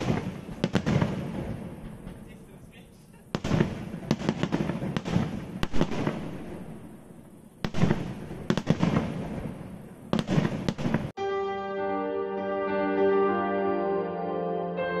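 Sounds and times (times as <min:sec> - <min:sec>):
fireworks bursting: 0:00.0 - 0:11.2
slow instrumental music: 0:11.2 - 0:15.0.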